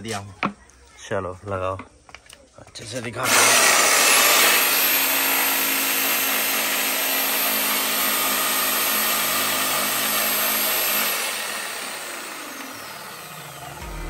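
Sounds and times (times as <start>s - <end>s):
jigsaw cutting plywood: 3.2s - 14.0s.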